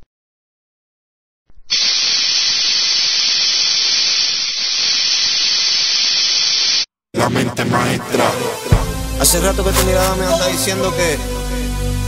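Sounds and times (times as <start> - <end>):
loud hiss of noise: 1.7 - 6.8.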